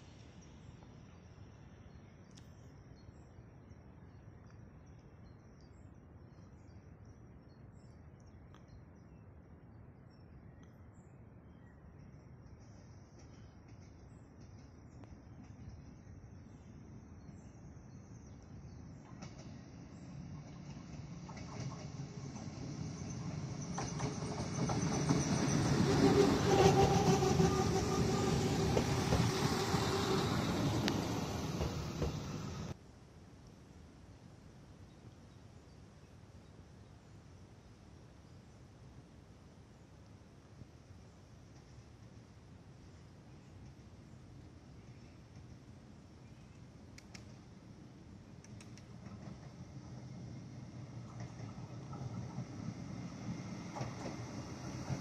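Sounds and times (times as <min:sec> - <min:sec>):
train wheels clicking on rails: 0:19.0 - 0:32.8, 0:48.4 - 0:55.0
diesel engine hum: 0:25.7 - 0:32.8.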